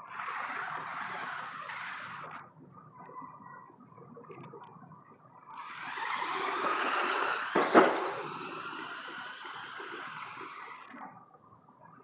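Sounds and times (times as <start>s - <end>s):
toy vehicle motor whine: 0.1s - 2.5s, 5.6s - 11.1s.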